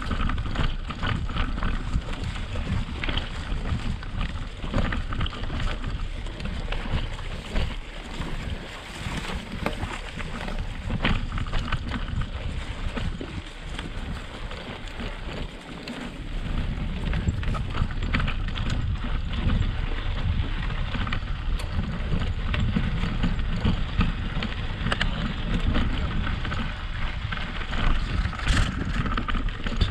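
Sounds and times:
bike rolling over gravel: 0:00.0 - 0:29.9
wind noise on microphone: 0:00.0 - 0:29.9.

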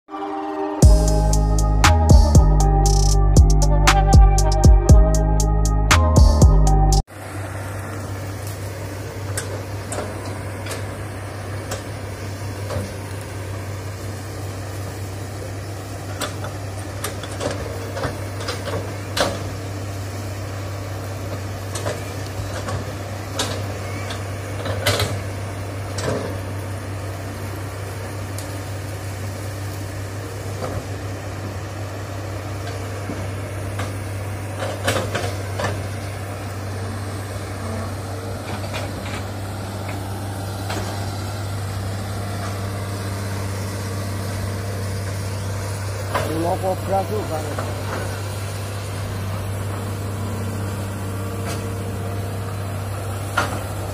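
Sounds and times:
excavator diesel engine drone: 0:00.1 - 0:53.9.

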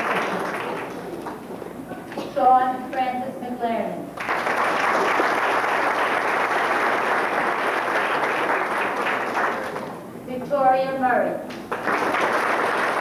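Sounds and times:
audience applauding: 0:00.0 - 0:01.7, 0:04.2 - 0:10.1, 0:11.6 - 0:13.0.

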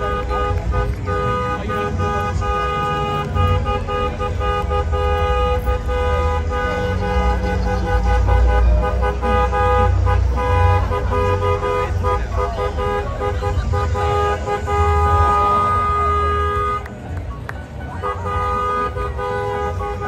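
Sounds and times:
vehicle horn honking: 0:00.0 - 0:17.0, 0:17.8 - 0:20.0
deep rumble of engines: 0:00.0 - 0:20.0.

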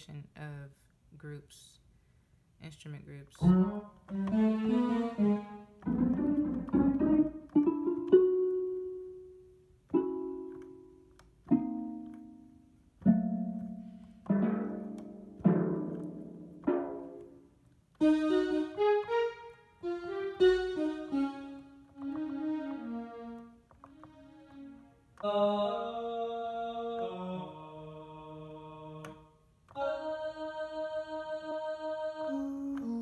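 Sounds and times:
tremolo string chords: 0:03.4 - 0:09.2, 0:09.9 - 0:25.1
plucked harp notes: 0:03.4 - 0:09.3, 0:09.9 - 0:24.9.

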